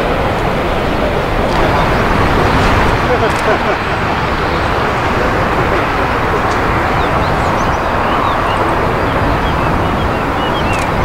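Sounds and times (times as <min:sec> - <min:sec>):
airliner jet noise: 0:00.0 - 0:11.0
small birds chirping: 0:04.1 - 0:11.0.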